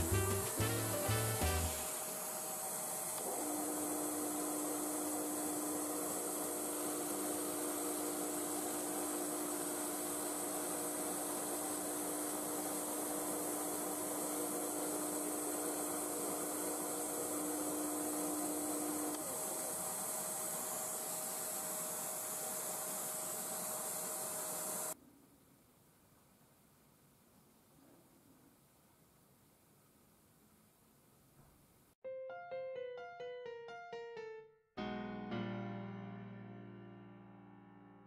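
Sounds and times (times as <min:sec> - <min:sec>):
vacuum hose hissing: 0:00.0 - 0:03.5
vacuum hissing with whine: 0:00.0 - 0:25.0.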